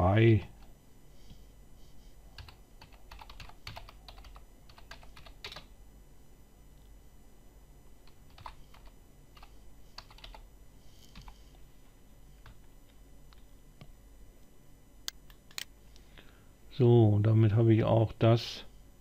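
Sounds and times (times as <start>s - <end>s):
keyboard typing clicks: 2.4s - 5.7s, 8.1s - 10.4s.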